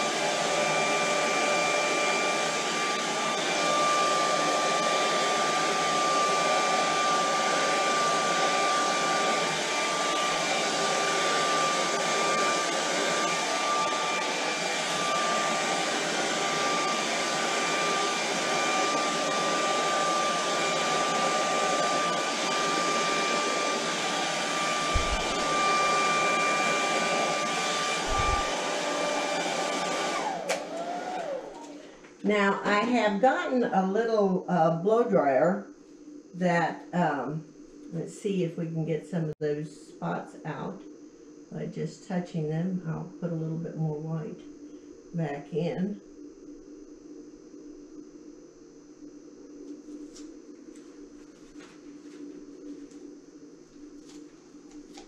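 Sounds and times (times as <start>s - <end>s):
hair dryer whining and blowing: 0.0s - 33.6s, 53.9s - 55.0s.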